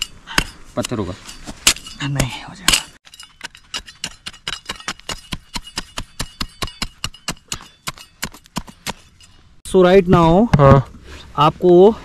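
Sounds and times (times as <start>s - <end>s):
hand tool striking hard soil: 0.0s - 9.4s.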